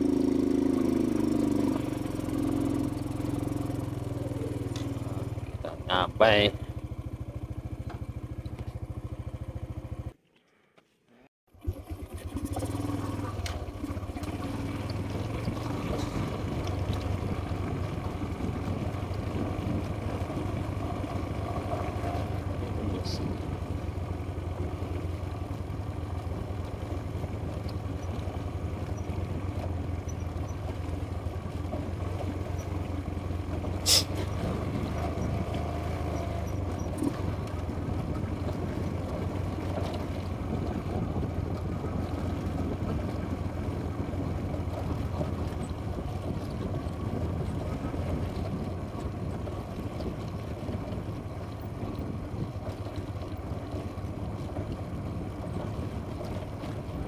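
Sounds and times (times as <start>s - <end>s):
small motorcycle engine running: 0.0s - 10.2s, 11.5s - 57.0s
wind noise: 15.9s - 20.7s, 40.4s - 52.8s.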